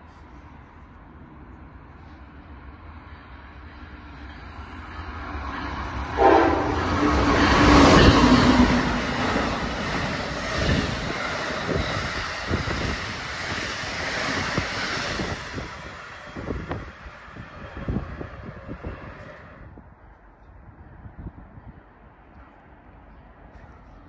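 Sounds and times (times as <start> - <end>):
train horn chord: 6.1 - 7.6.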